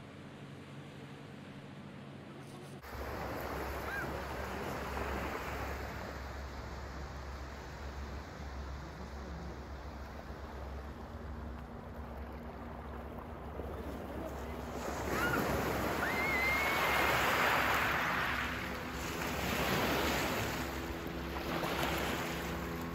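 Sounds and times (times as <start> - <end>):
faint motorboat engine: 0.0 - 22.9
waves washing over pebbles: 14.6 - 22.9.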